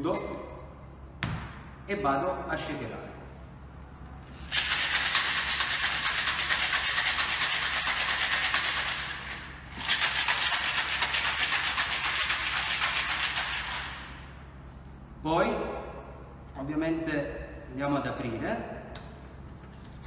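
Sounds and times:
ice rattling in cocktail shaker: 0:04.4 - 0:13.8.

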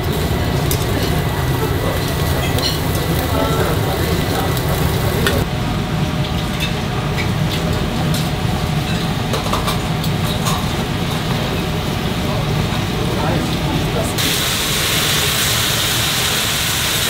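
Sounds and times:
meat sizzling on a grill: 0:00.0 - 0:05.5, 0:14.1 - 0:17.0
fire crackling: 0:00.0 - 0:05.6, 0:11.4 - 0:17.0
low kitchen rumble: 0:00.0 - 0:17.0.

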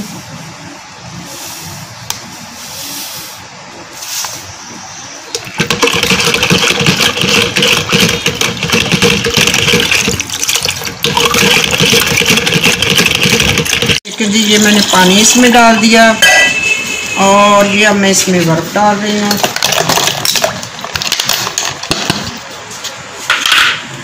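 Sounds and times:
powder pouring through strainer: 0:05.4 - 0:15.0.

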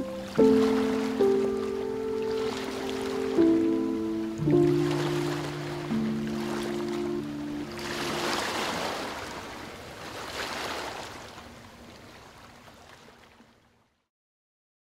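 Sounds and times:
background music: 0:00.0 - 0:08.6
ocean waves washing in: 0:00.0 - 0:13.3.

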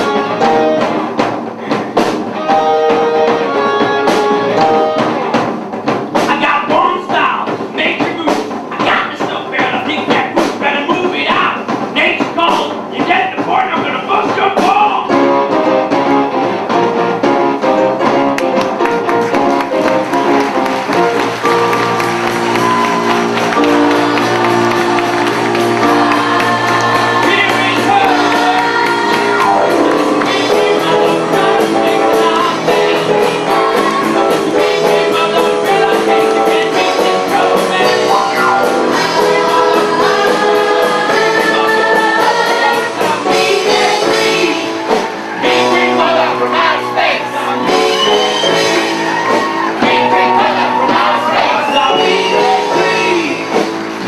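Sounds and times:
pit band playing: 0:00.0 - 0:54.0
chorus singing: 0:17.8 - 0:54.0.

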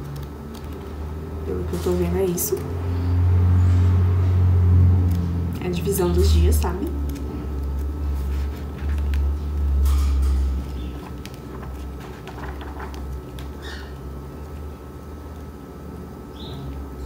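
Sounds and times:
book pages rustling: 0:06.9 - 0:13.8.

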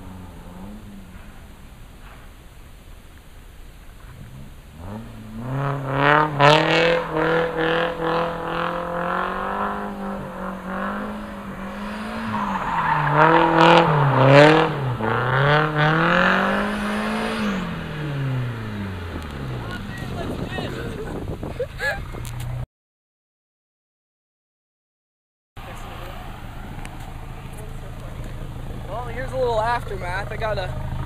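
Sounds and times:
car engine revving: 0:00.0 - 0:02.4, 0:03.9 - 0:22.6, 0:25.6 - 0:31.0
tyres screeching: 0:10.2 - 0:15.4.

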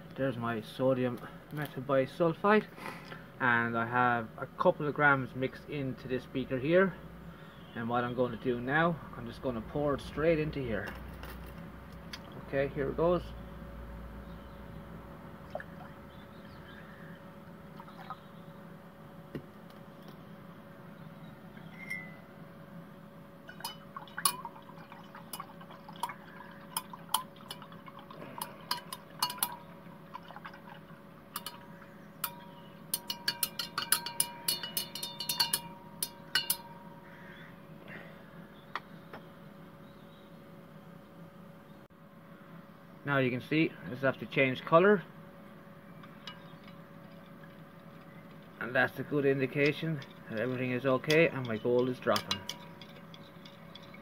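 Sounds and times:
glass rod clinking on beaker: 0:21.7 - 0:22.2, 0:23.5 - 0:24.5, 0:28.4 - 0:29.7, 0:31.4 - 0:37.0, 0:46.0 - 0:47.2, 0:49.3 - 0:54.0.

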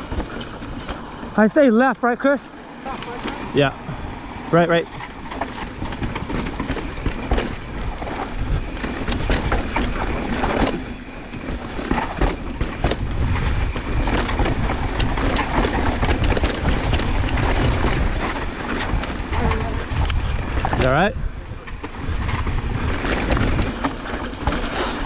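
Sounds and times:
bike clicking and rattling: 0:00.0 - 0:25.0
tyres and wind rumbling: 0:00.0 - 0:25.0.

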